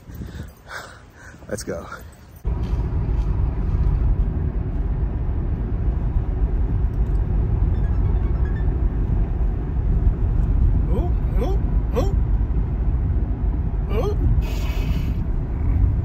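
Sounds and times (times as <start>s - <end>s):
van engine and road rumble: 0.0s - 16.0s.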